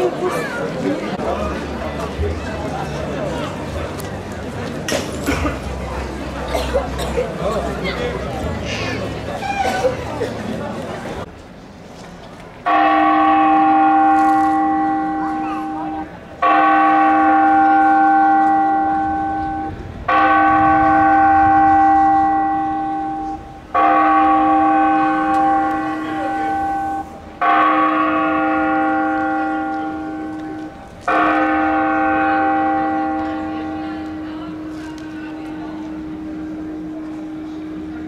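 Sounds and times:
large bell tolling: 12.7 - 38.0.

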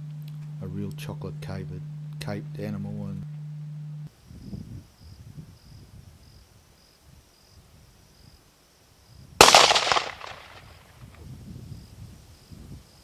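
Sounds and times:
faint insect chirping: 0.0 - 13.0
rifle shot with echo: 9.4 - 10.7.

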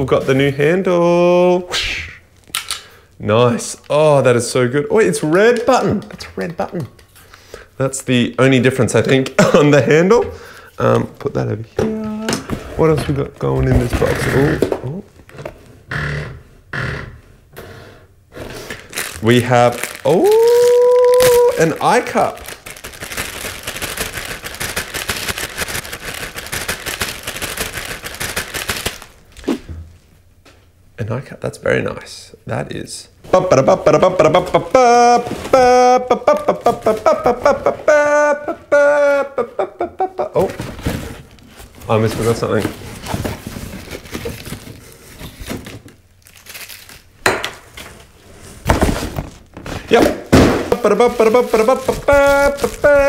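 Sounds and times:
plastic bag crinkling: 18.8 - 29.4, 41.2 - 47.2, 50.7 - 53.0.

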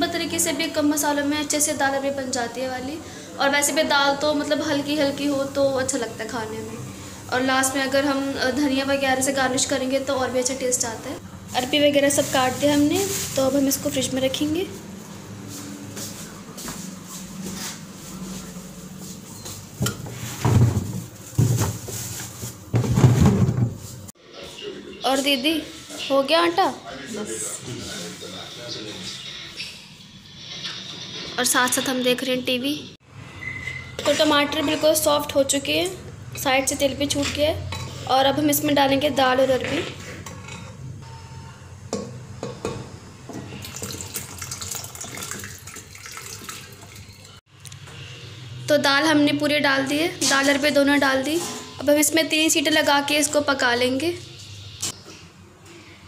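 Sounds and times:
plastic bag rustling: 11.5 - 14.4, 20.1 - 24.1
water pouring and splashing: 43.6 - 47.4.

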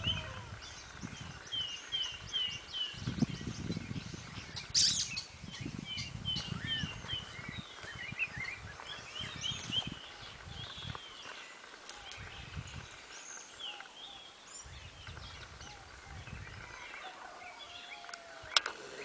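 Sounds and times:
birds chirping: 0.0 - 19.0
rustling through undergrowth: 6.1 - 17.2.

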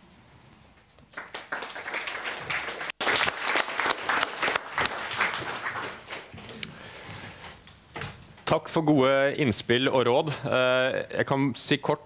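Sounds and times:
audience applauding: 1.1 - 6.4.

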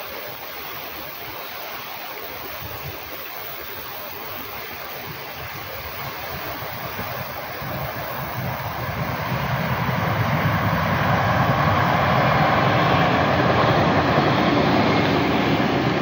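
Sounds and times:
faint train whine: 0.0 - 16.0
train wheels rushing on rails: 6.3 - 16.0.

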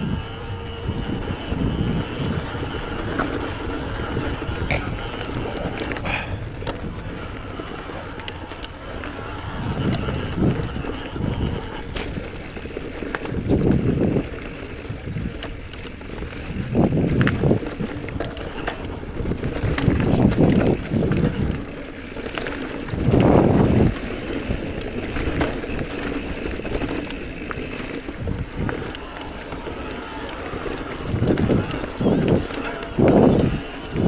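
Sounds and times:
bike clicks and rattles: 0.0 - 34.0
bike tyres rolling over dirt: 0.0 - 34.0.

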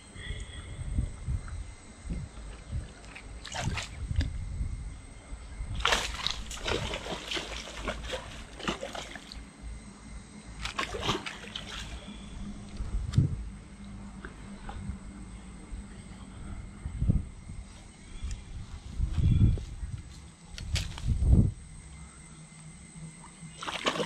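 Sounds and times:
water splashing and sloshing: 2.3 - 4.4, 5.7 - 9.7, 10.5 - 12.8, 23.2 - 24.0.

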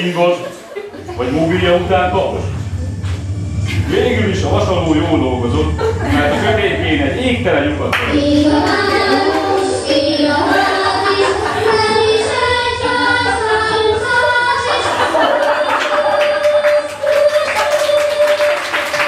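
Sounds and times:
person singing with music: 8.0 - 18.8.

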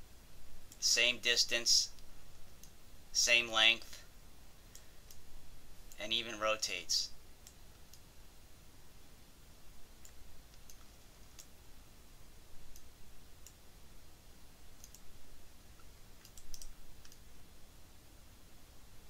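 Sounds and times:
computer mouse clicking: 10.0 - 11.5, 12.7 - 13.6, 14.8 - 15.1, 15.8 - 17.2.

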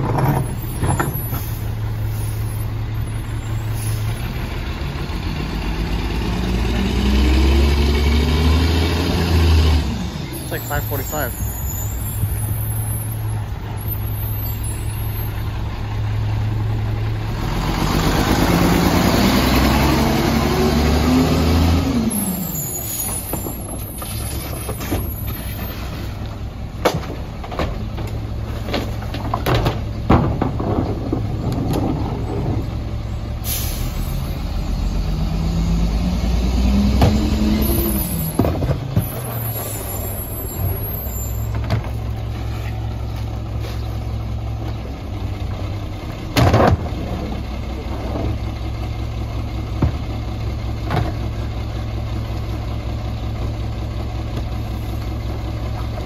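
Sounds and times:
diesel engine revving: 0.0 - 56.0
air brake hiss: 3.6 - 4.2, 33.4 - 34.2
trash cans clanking on hopper: 26.8 - 32.7.

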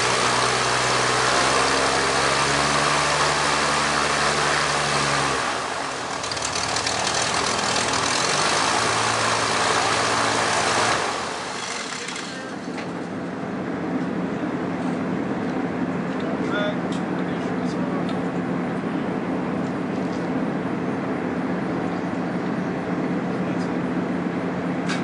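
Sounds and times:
propeller winding down: 0.0 - 13.8
propeller plane engine running: 0.0 - 25.0.

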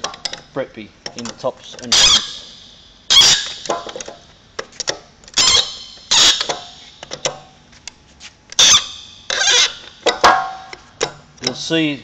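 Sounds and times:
tool clicking on pins: 0.0 - 7.4
sharp squeak of pin turning: 1.9 - 3.7, 5.4 - 7.0, 8.6 - 10.0.

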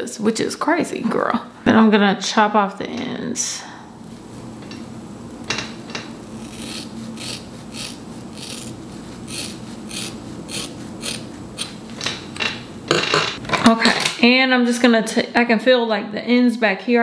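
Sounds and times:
shears snipping hair: 5.8 - 11.8.

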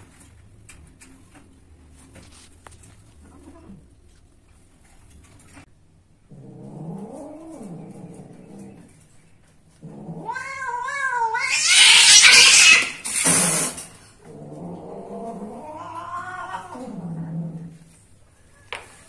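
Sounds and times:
cat yowling and hissing: 10.0 - 13.8, 15.2 - 17.1.

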